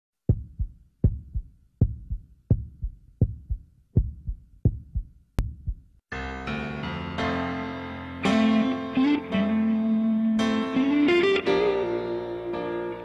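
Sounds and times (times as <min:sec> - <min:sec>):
heartbeat double thump: 0:00.3 - 0:05.9
music: 0:00.3 - 0:13.0.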